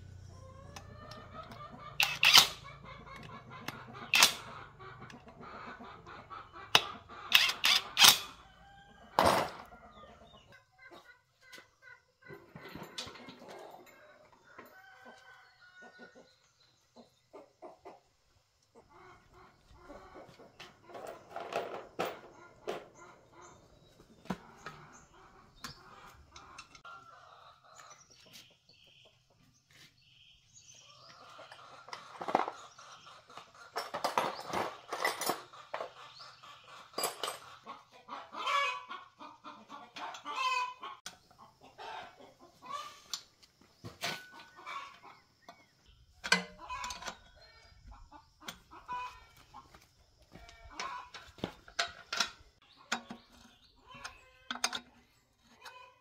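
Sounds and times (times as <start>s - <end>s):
chickens clucking: 0.0s - 56.0s
metal tools clinking: 33.8s - 35.5s.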